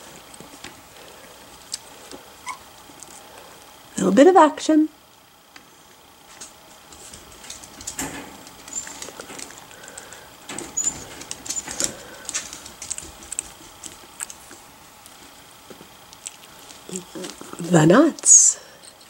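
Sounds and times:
puppy squeaks: 2.4 - 2.6
puppies scuffling: 6.3 - 17.8.

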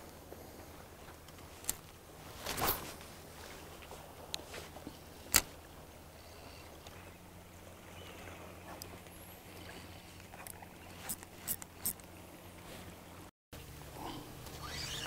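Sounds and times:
steady low hum: 0.0 - 15.0
reel clicks: 5.2 - 5.6, 8.8 - 12.2.

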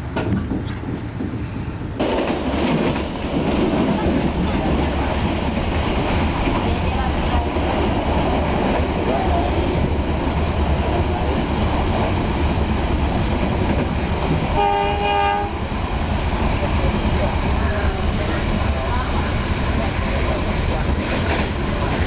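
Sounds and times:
train rumbling inside carriage: 0.0 - 22.0
train horn: 14.4 - 15.6.

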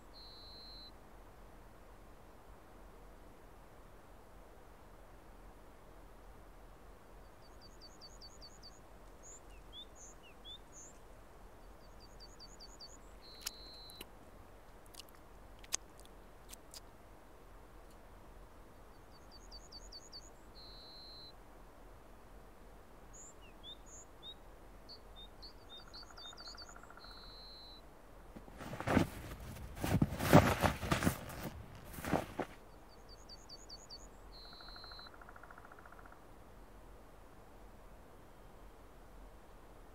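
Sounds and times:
songbird singing: 0.0 - 1.0, 7.1 - 14.2, 18.8 - 21.4, 23.0 - 36.3
faint steady hiss: 0.0 - 39.9.

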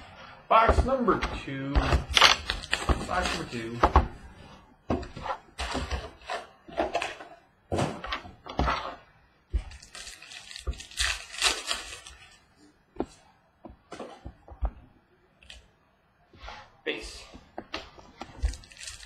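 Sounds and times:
plastic and foil packs crinkling: 2.1 - 3.8, 9.7 - 12.5, 18.4 - 19.0.

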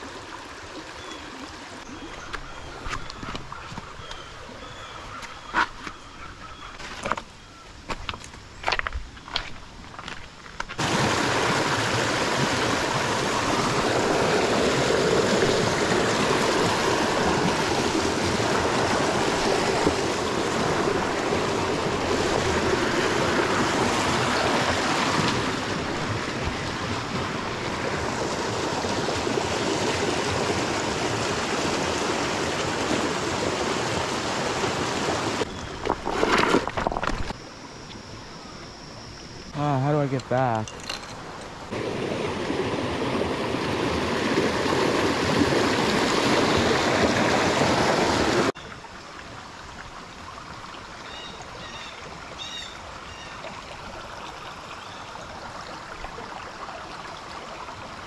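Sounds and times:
creek water rushing: 0.0 - 5.6, 10.8 - 37.3, 39.5 - 58.0.

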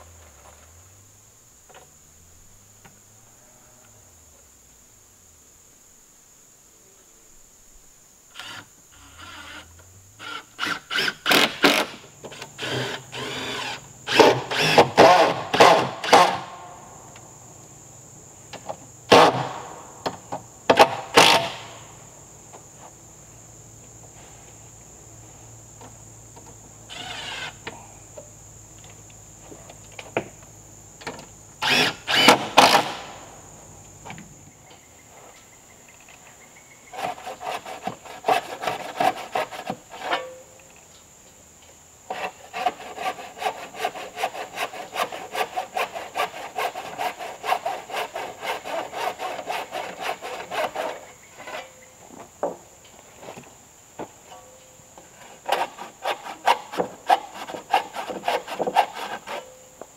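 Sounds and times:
insects buzzing: 0.0 - 59.9
cordless drill driving screws: 12.6 - 16.4, 26.9 - 27.6, 31.6 - 33.0
handsaw cutting wood: 12.6 - 16.5, 31.6 - 33.1, 37.0 - 40.3, 42.1 - 51.6, 55.4 - 59.5.

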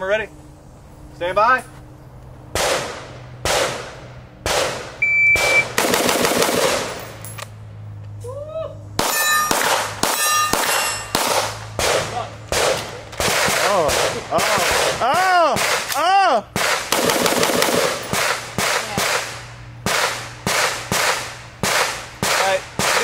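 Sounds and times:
pistol shots: 2.5 - 7.1, 9.0 - 15.0, 16.6 - 23.0
rifle shots: 2.5 - 7.2, 9.0 - 15.0, 16.6 - 23.0
steel targets ringing: 9.0 - 11.6.

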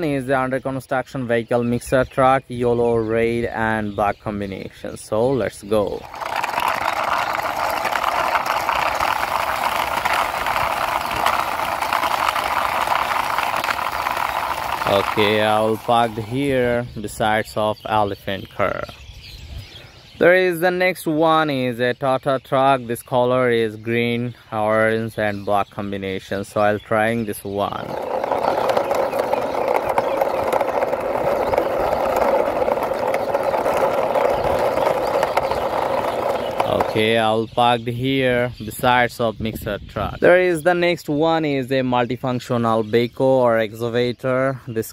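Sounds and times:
toy truck wheels rattling on concrete: 5.4 - 17.2, 26.4 - 37.4.

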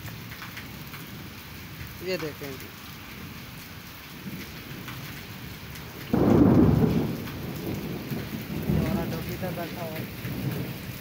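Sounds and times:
heavy rain on concrete: 0.0 - 11.0
thunderclap rumbling: 4.1 - 11.0.

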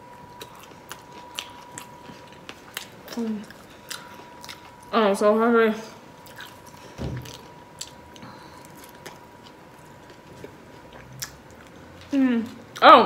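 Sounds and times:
chewing and mouth sounds: 0.0 - 4.9, 6.2 - 12.9.

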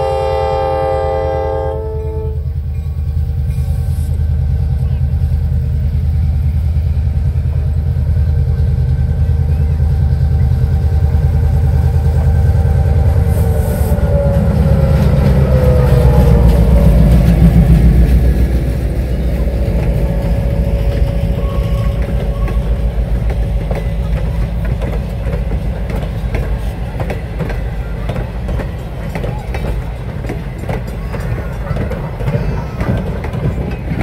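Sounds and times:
diesel locomotive engine: 0.0 - 34.0
train wheels clicking over rails: 2.5 - 34.0.

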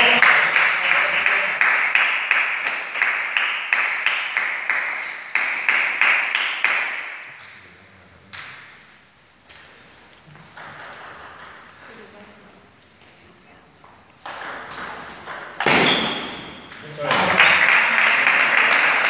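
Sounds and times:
table tennis ball bouncing: 7.3 - 7.6, 8.3 - 8.8, 10.4 - 11.8, 14.2 - 17.5.

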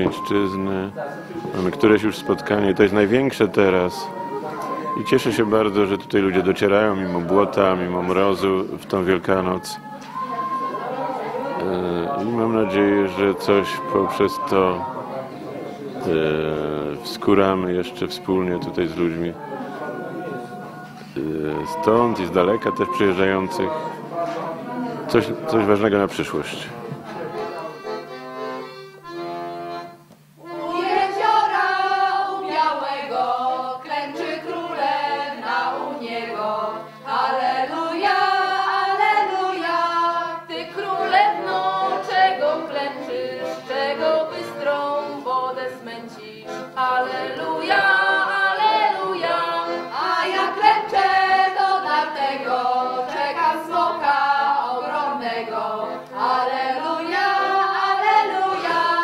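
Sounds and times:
group of voices singing: 0.0 - 25.9, 30.4 - 59.0.

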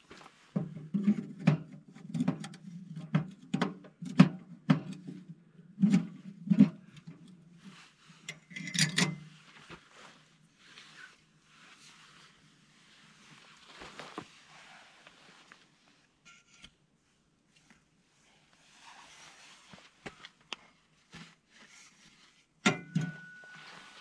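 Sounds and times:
metal stove clanks and scrapes: 8.3 - 9.3, 16.3 - 16.7, 22.7 - 23.6.

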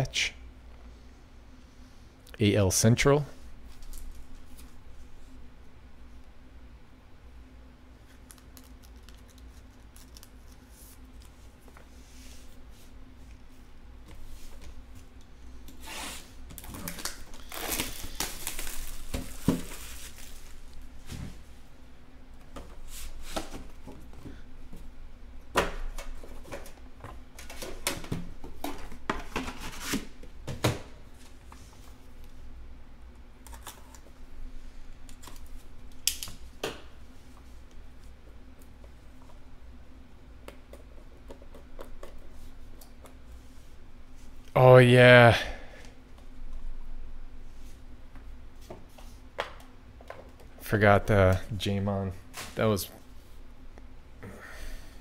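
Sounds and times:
wrapping and cardboard tearing: 16.6 - 20.7.

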